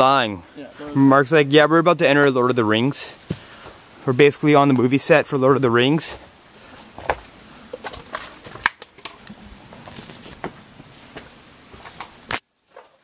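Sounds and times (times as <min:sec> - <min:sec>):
footsteps scrambling over rocks: 0:03.2 - 0:03.8, 0:06.0 - 0:13.0.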